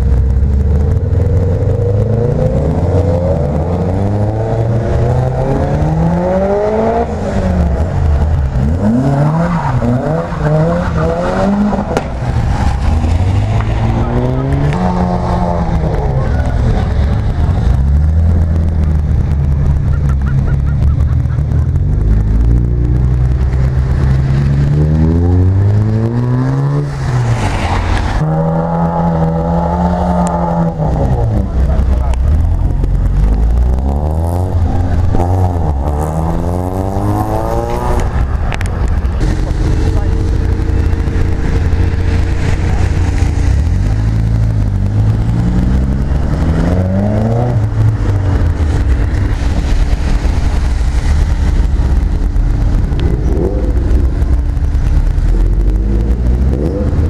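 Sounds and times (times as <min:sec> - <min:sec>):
car engines revving and accelerating: 0:00.0 - 0:57.0.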